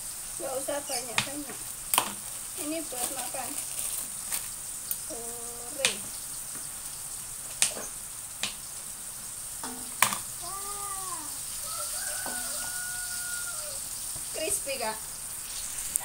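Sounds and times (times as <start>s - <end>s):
oil sizzling: 0.0s - 16.0s.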